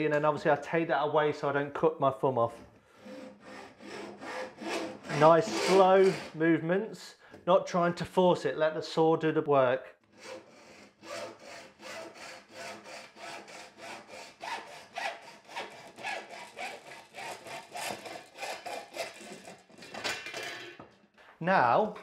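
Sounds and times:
hacksaw cutting metal: 2.9 - 6.4, 10.2 - 20.5.

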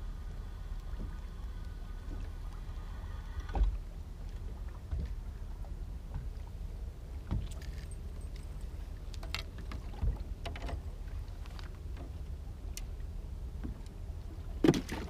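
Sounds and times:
water and wind rumbling: 0.0 - 15.0
dull knocks against boat: 14.6 - 15.0.

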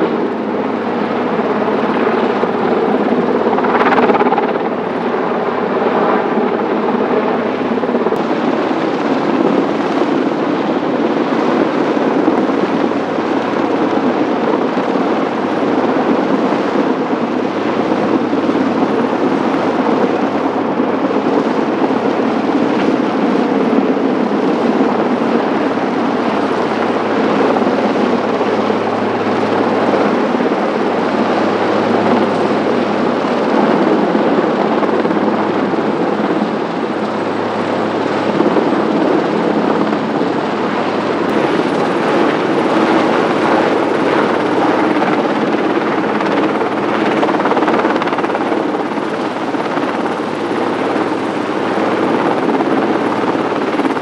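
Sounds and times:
helicopter hovering: 0.0 - 54.0.

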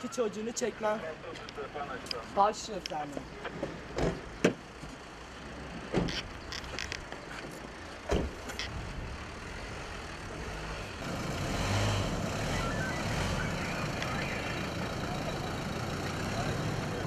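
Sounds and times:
car engine running: 8.6 - 17.0.

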